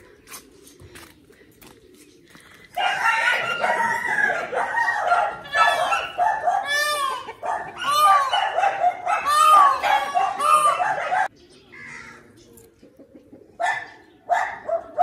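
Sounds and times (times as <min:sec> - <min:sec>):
hens clucking: 0:00.0 - 0:11.3, 0:12.2 - 0:14.2
rooster crowing: 0:02.8 - 0:11.3.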